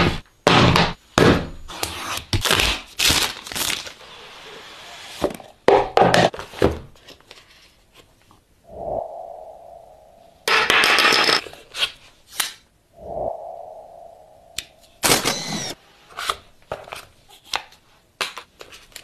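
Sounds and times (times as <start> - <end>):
steady tone: 8.6 - 10.7, 12.9 - 15.8.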